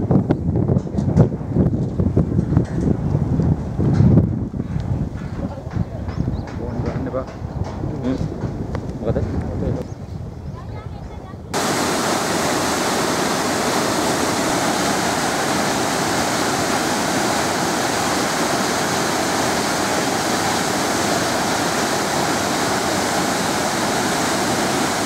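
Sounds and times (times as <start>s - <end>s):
waterfall rushing: 11.6s - 25.0s.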